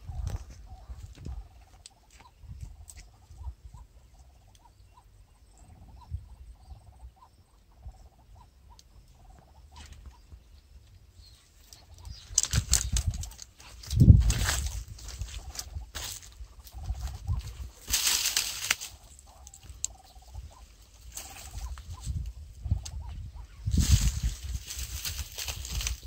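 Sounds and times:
wind-buffeting thumps: 11.9 - 18.8, 21.2 - 26.0
rustling: 17.4 - 19.8, 23.7 - 26.0
faint regular ticks: 19.3 - 20.2.

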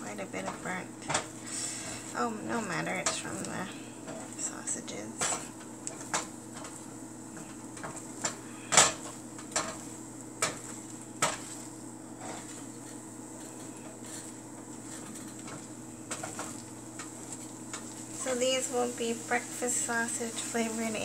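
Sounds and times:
steady low hum: 0.0 - 21.0
spatula scraping frying pan: 5.2 - 21.0.

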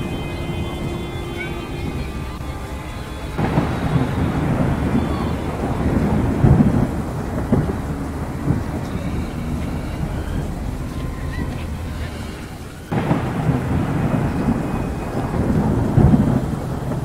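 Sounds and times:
fire crackling and popping: 0.0 - 17.0
wildfire rumbling: 0.0 - 17.0.

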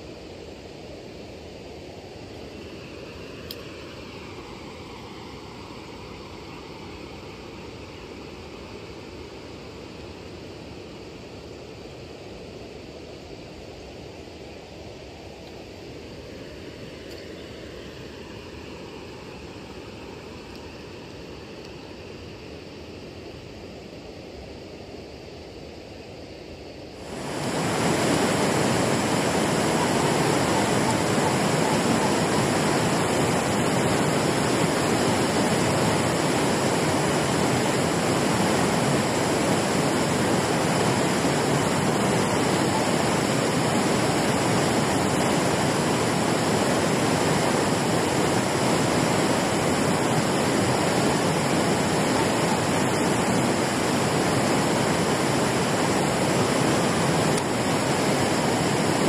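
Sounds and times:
water rushing down a weir: 27.0 - 59.0.

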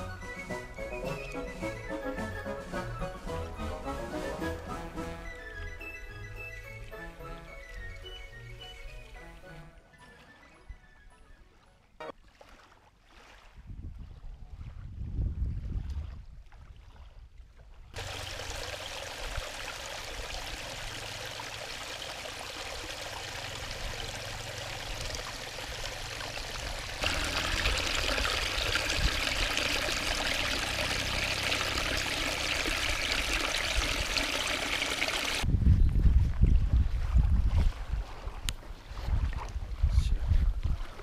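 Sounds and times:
stream splashing over rocks: 18.0 - 35.4.

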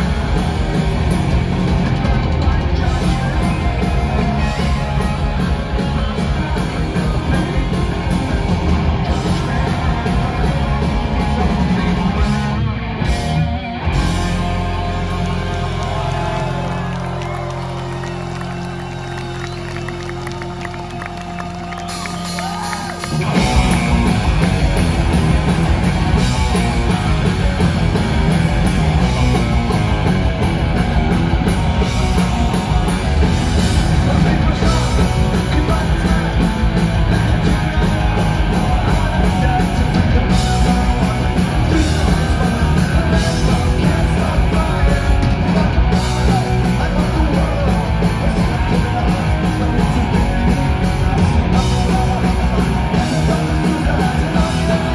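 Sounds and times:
punk rock band playing live: 0.0 - 54.9
lead singer singing: 1.9 - 12.6, 32.1 - 54.9.

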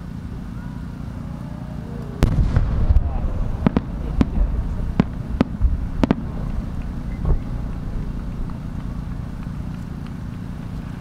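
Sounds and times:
low rumble: 0.0 - 11.0
firework shell bursting: 2.2 - 10.6.

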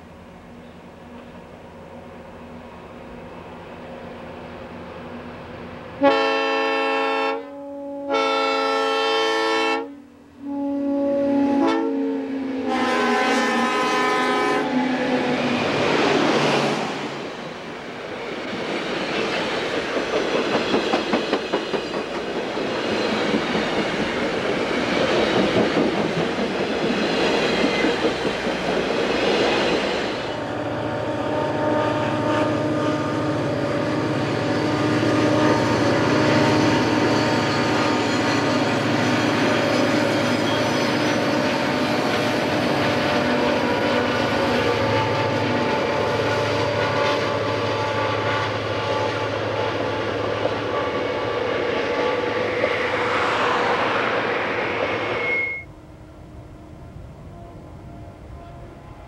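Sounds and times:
locomotive air horn blasts: 6.0 - 14.8, 30.4 - 37.5, 43.2 - 52.5, 57.3 - 59.0
train wheels clattering: 18.2 - 30.2.

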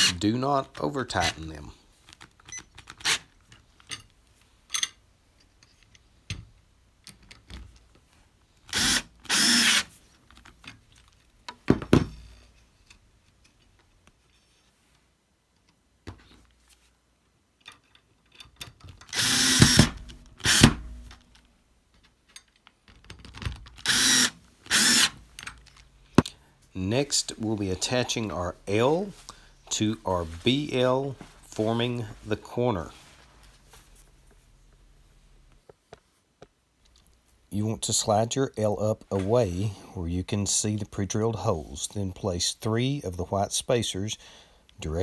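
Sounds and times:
cordless drill driving screws: 8.7 - 9.9, 19.1 - 20.8, 23.8 - 25.2.

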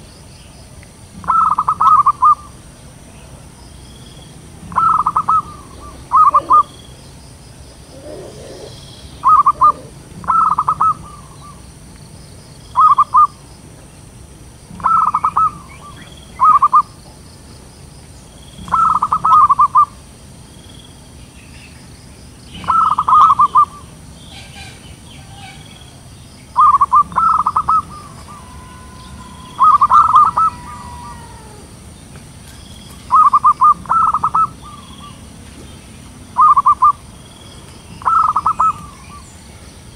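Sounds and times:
dove cooing: 1.2 - 2.5, 4.6 - 6.9, 7.8 - 11.6, 12.8 - 13.4, 14.7 - 17.0, 18.6 - 20.0, 22.6 - 32.0, 33.1 - 35.3, 36.4 - 37.0, 38.0 - 39.3.

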